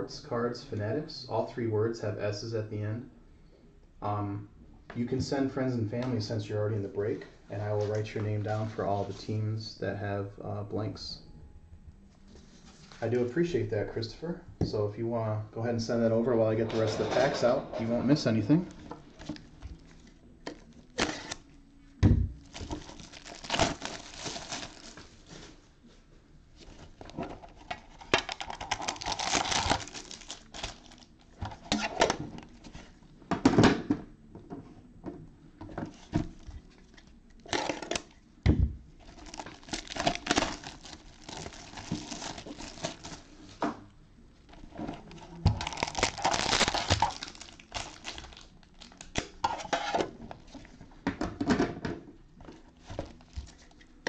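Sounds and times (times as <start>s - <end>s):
plastic wrap crinkling and tearing: 18.6s - 21.6s, 22.4s - 25.6s, 26.6s - 33.0s, 39.0s - 43.6s, 44.4s - 50.8s, 52.6s - 54.0s.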